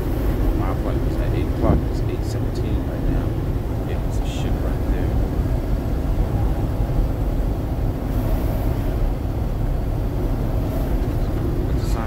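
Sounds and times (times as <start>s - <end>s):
truck cab engine and road rumble: 0.0s - 12.0s.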